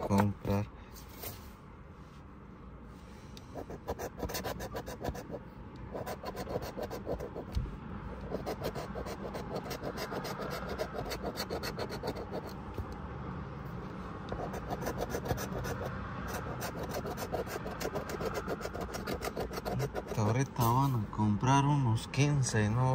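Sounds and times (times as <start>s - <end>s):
coin scratching lottery ticket: 3.6s - 7.5s, 8.2s - 12.6s, 14.3s - 20.9s.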